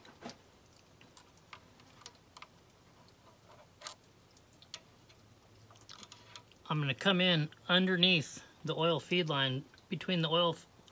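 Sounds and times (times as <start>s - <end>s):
small metallic clicks: 0.0s - 6.6s.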